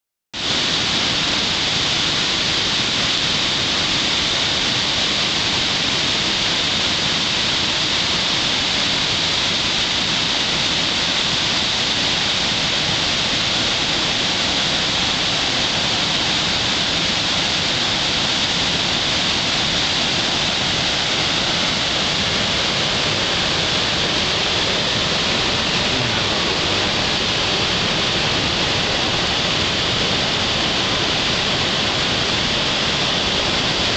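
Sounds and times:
flood water rushing: 0:00.4 - 0:33.9.

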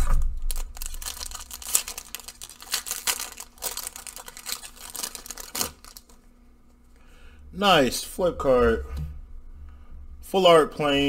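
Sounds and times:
foil wrapper crinkling and tearing: 0:00.0 - 0:06.2.

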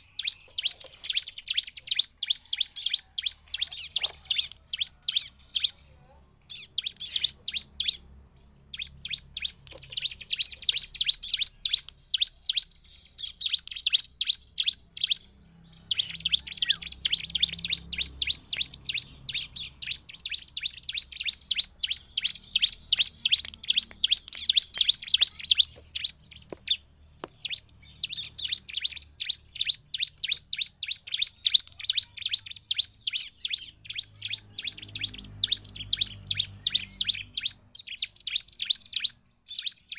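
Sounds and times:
bird singing rapid high chirps: 0:00.0 - 0:39.9.

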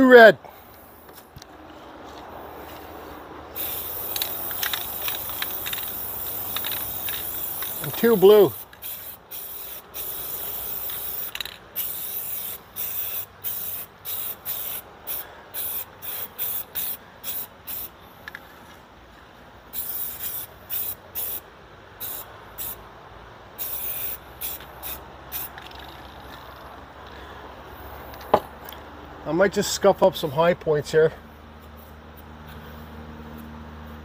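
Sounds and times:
spray can hissing bursts: 0:03.6 - 0:18.0, 0:19.7 - 0:21.4, 0:22.0 - 0:22.8, 0:23.6 - 0:26.0.

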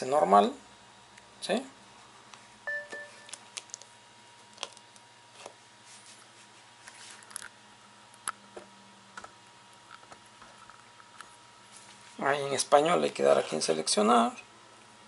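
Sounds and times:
phone electronic beep: 0:02.7 - 0:03.4.

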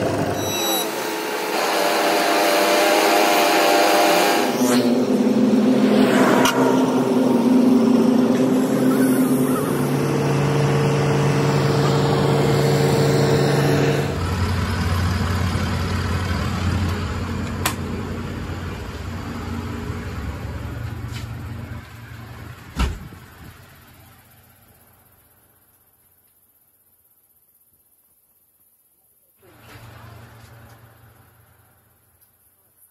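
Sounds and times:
diesel engines running: 0:00.0 - 0:24.6, 0:29.5 - 0:31.9
low machinery hum: 0:04.4 - 0:25.1.

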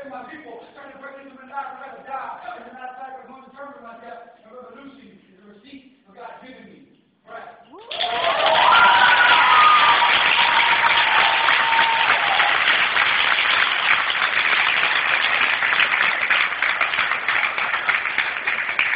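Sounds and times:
audience applauding: 0:07.8 - 0:18.9
audience cheering: 0:07.8 - 0:18.9.

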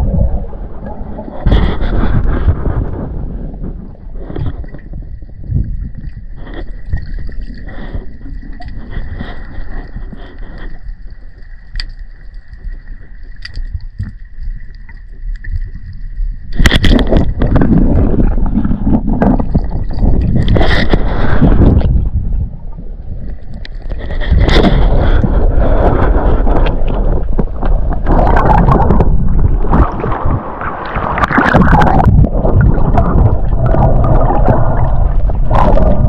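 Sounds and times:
low underwater rumble: 0:00.0 - 0:36.0
water rushing past camera: 0:24.0 - 0:36.0.

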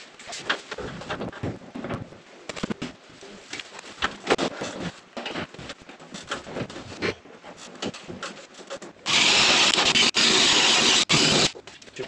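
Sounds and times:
power drill boring through wood: 0:09.1 - 0:11.5.

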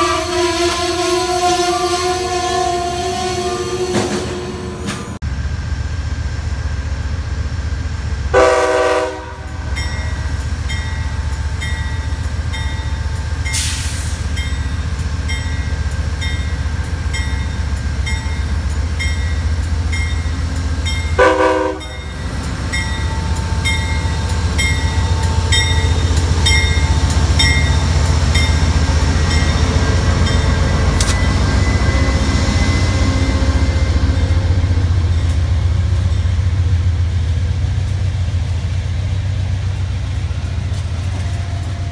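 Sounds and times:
train horn blasts: 0:00.0 - 0:04.7, 0:08.3 - 0:09.8, 0:21.2 - 0:22.0
diesel locomotive engine rumble: 0:00.0 - 0:41.9.

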